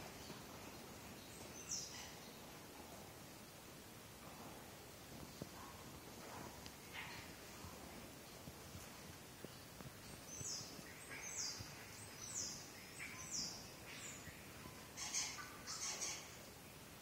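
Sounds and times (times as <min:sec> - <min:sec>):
bird chirping: 0:10.0 - 0:16.4.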